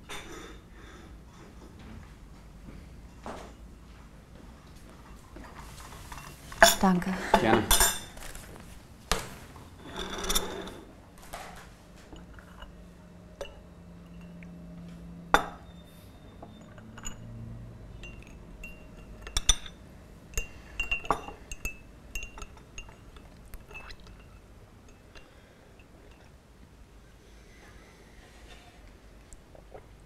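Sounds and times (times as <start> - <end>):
teaspoon clinking against cup: 18.0 - 25.9.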